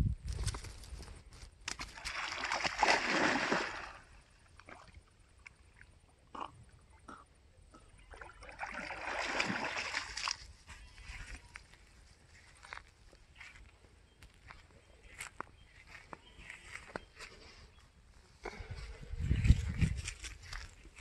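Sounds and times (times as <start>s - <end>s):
dog splashing into water: 1.7s - 4.1s, 8.1s - 10.4s
dog paddling in water: 8.0s - 10.4s.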